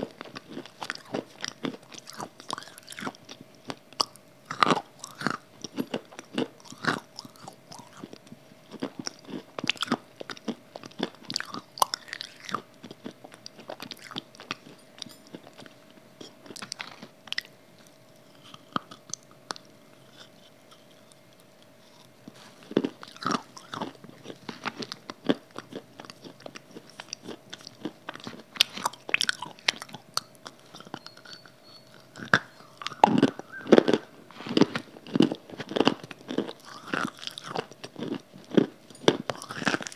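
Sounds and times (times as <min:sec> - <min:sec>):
crunchy biting and chewing: 0:00.0 - 0:39.9
faint steady hum: 0:00.0 - 0:39.9.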